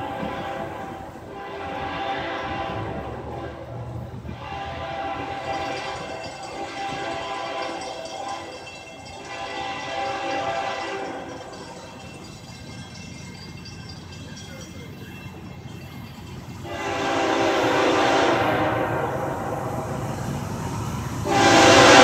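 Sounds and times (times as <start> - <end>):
locomotive horn blasts: 0.0 - 8.5, 9.2 - 11.5, 16.6 - 20.0, 21.2 - 22.0.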